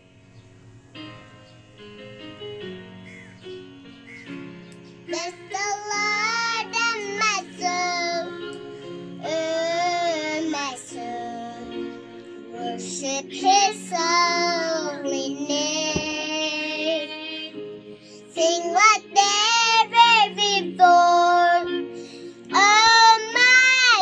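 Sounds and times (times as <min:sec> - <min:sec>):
quiet backing track: 0:00.0 - 0:24.0
girl singing: 0:05.1 - 0:17.6, 0:18.3 - 0:24.0.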